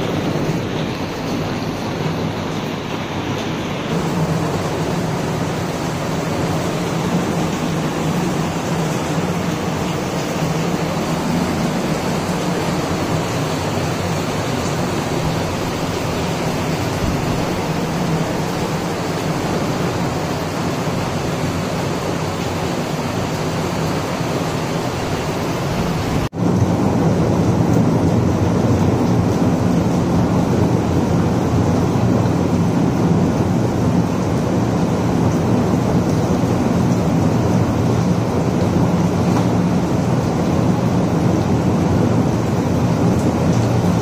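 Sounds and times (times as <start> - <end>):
rain falling: 0.0 - 44.0.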